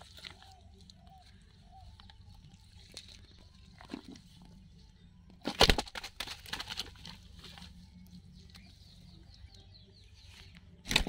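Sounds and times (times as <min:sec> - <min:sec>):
low background hum: 0:00.0 - 0:11.0
rustles and knocks of net: 0:05.4 - 0:07.8.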